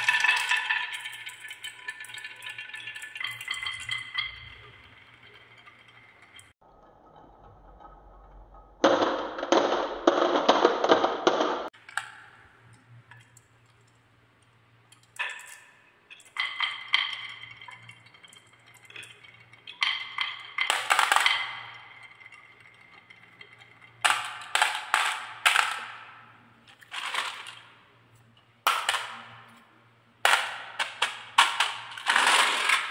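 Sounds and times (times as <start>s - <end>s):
marbles clinking in plastic truck: 0.0s - 6.6s, 15.0s - 28.0s, 28.6s - 32.9s
marbles rolling on wooden track: 0.0s - 13.4s, 14.9s - 32.9s.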